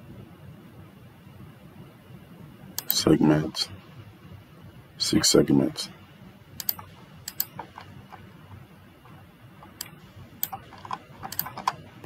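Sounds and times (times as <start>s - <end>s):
computer mouse clicking: 2.8s - 3.0s, 6.6s - 12.0s.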